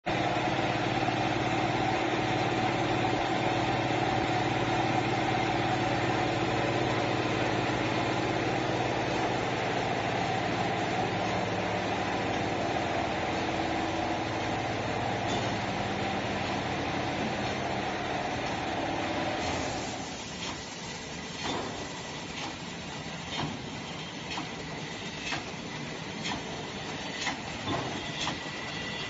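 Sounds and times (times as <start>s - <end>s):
machine hum with held tones: 0.1s - 20.2s.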